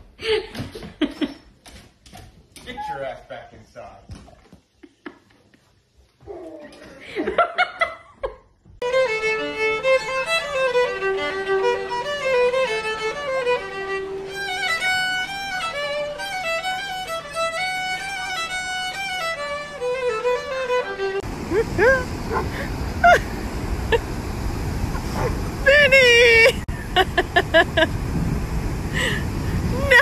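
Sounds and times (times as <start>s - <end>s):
violin melody: 8.8s - 21.3s.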